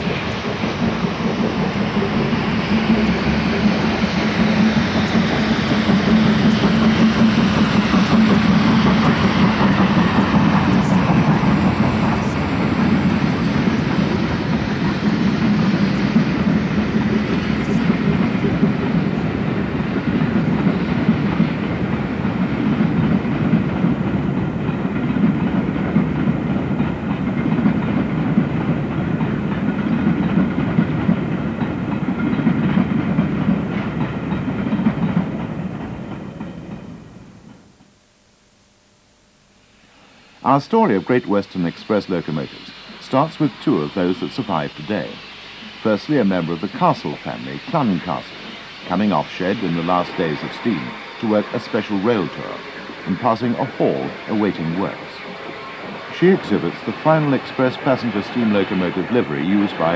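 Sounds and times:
steam locomotive exhaust: 0.0s - 37.9s, 39.6s - 59.9s
train rolling over track: 0.0s - 37.9s, 40.4s - 59.9s.

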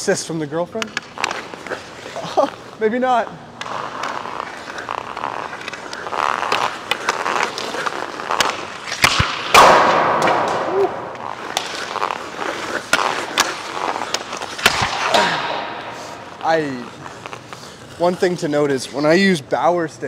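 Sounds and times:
skates scraping on ice: 0.2s - 19.4s
stick clicking on puck: 3.6s - 10.6s
hockey stick shot crack: 3.6s - 17.8s.

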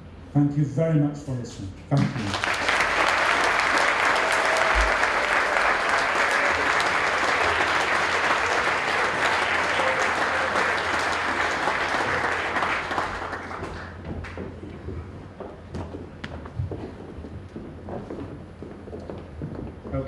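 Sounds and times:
audience applauding: 2.0s - 14.4s.

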